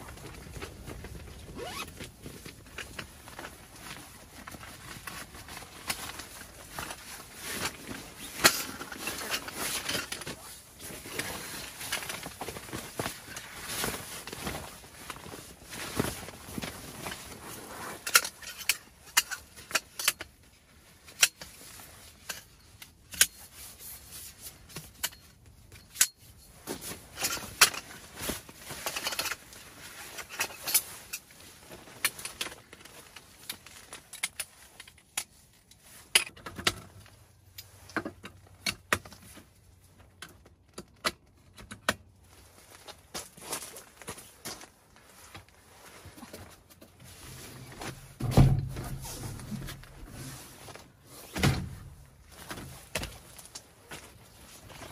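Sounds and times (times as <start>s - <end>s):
fabric rustling: 0.0s - 19.0s, 42.2s - 54.9s.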